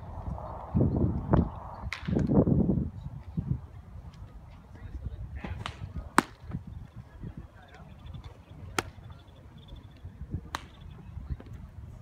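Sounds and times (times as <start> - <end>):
wind rumble on microphone: 0.0 - 12.0
baseballs smacking into gloves: 5.5 - 6.6, 8.2 - 9.0, 10.4 - 10.8.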